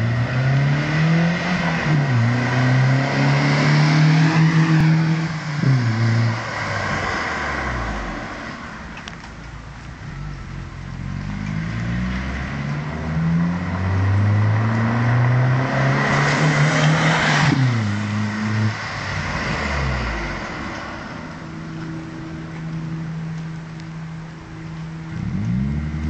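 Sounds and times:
car engine accelerating past: 0.0 - 8.8, 10.9 - 21.4, 25.1 - 26.0.

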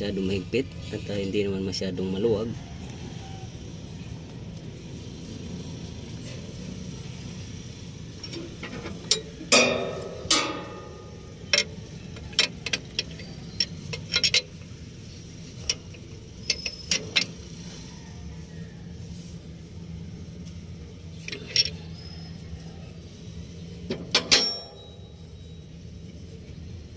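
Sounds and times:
steady low hum: 0.0 - 26.9
metal tools clanking on metal: 8.2 - 14.7, 15.6 - 17.4, 21.2 - 22.1, 23.9 - 25.6
loud ringing metal strikes: 9.2 - 11.6.

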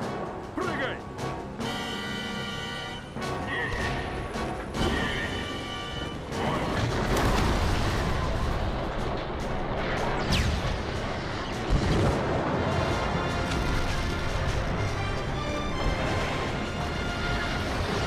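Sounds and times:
orchestral score: 0.0 - 18.0
rumbling blasts: 6.2 - 18.0
explosion with crashing debris: 6.6 - 14.8.

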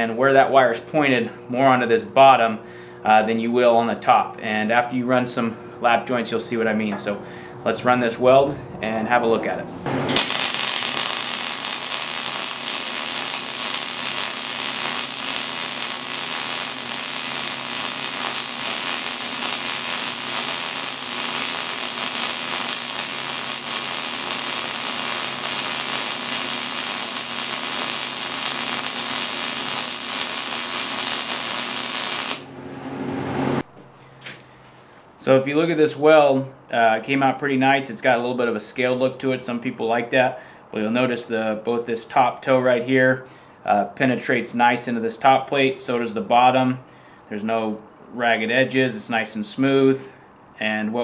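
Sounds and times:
welding arc running: 9.9 - 32.6.

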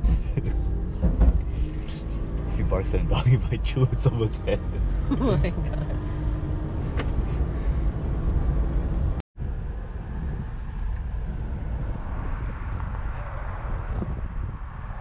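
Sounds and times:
road noise: 0.0 - 15.0
wind noise on microphone: 9.0 - 15.0.

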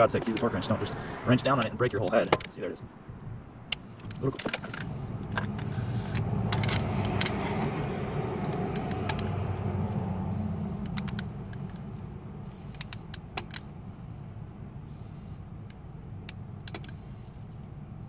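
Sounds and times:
steady low rumble: 0.0 - 18.0
ratchet wrench clicking: 3.7 - 11.9, 12.5 - 13.8, 15.6 - 17.3.

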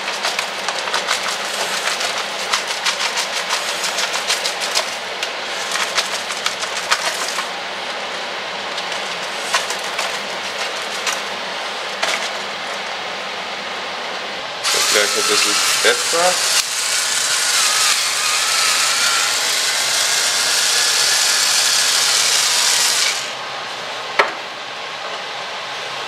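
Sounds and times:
steady hiss: 14.6 - 19.4.

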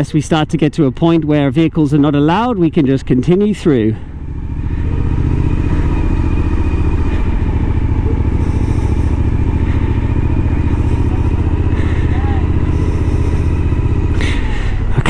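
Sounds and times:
motorcycle engine running: 1.2 - 15.0.

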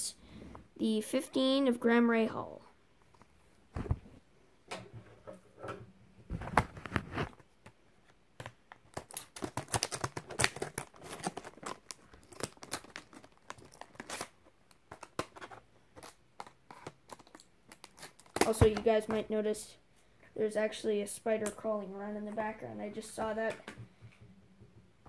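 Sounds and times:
plastic packaging crackling: 8.4 - 18.8
plastic rustling: 8.6 - 19.0.

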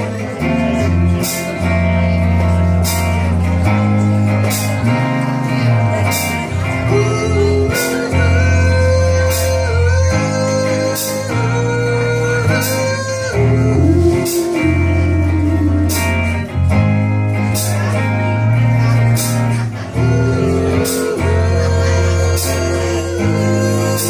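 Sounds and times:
live rock band playing: 0.0 - 24.0
man singing: 5.5 - 16.6, 18.8 - 24.0.

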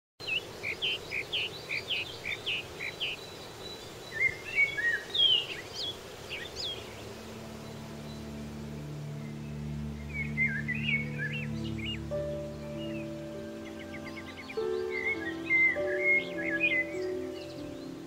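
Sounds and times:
birds chirping: 0.2 - 18.0
steady outdoor hiss: 0.2 - 18.0
low sustained music tones: 3.2 - 18.0.

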